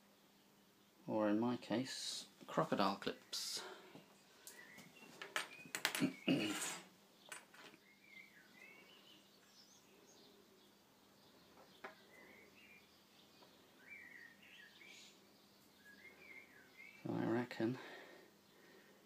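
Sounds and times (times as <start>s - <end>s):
faint bird chirps: 3.2s - 17.8s.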